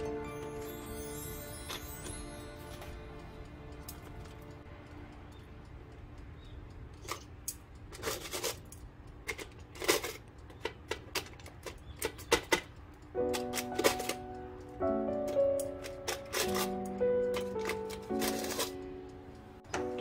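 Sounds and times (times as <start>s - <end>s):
tongs scraping: 6.8s - 14.3s.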